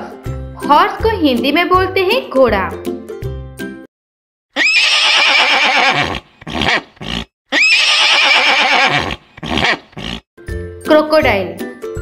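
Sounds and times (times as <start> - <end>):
horse whinnying: 4.5 - 10.2
horse breathing: 5.7 - 10.2.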